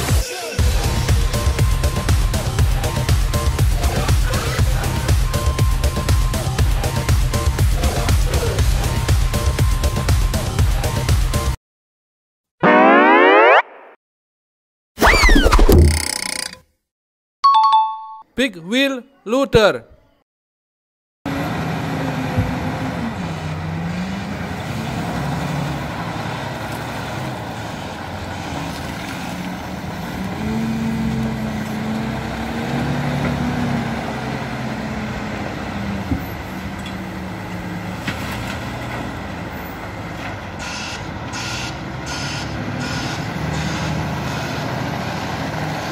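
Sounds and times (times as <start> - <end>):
diesel engine under load: 0.0 - 11.6, 21.3 - 45.9.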